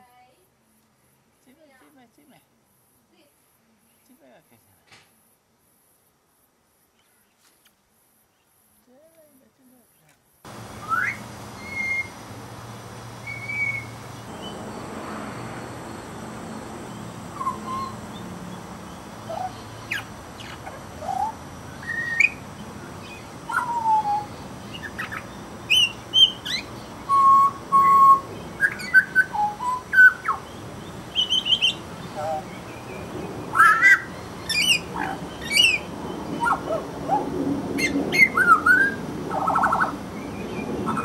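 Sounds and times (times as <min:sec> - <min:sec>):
bird whistling notes: 0:10.7 - 0:12.2, 0:13.2 - 0:14.7, 0:17.0 - 0:22.4, 0:23.0 - 0:32.9, 0:33.5 - 0:37.2.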